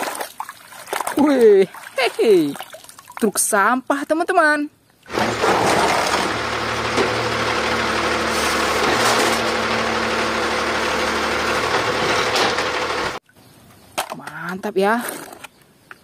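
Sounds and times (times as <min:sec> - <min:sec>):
garbage truck engine running: 0:05.1 - 0:13.2
hydraulic arm lifting cart: 0:05.1 - 0:13.2.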